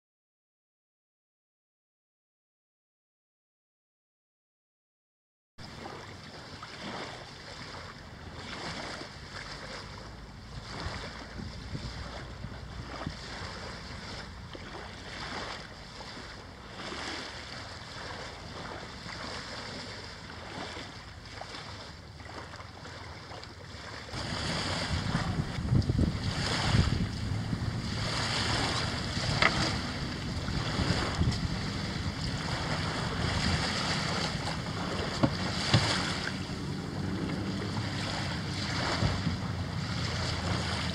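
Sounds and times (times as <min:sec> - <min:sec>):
small waves lapping on shore: 0:05.6 - 0:40.9
wind buffeting microphone: 0:08.4 - 0:20.9, 0:24.1 - 0:40.9.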